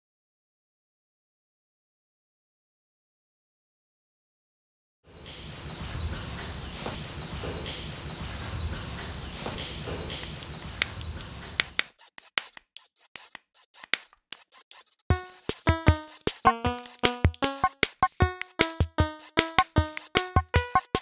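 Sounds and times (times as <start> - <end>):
scratchy rubbing swishes: 5.4 - 17.2
sharp clicks: 6.3 - 11.9.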